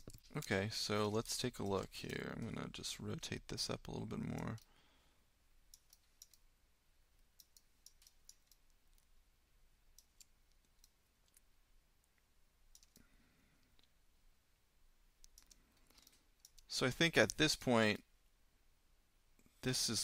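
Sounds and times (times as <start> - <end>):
computer mouse clicks: 5.7 - 6.5, 7.4 - 9.1, 12.1 - 14.0, 15.2 - 17.5.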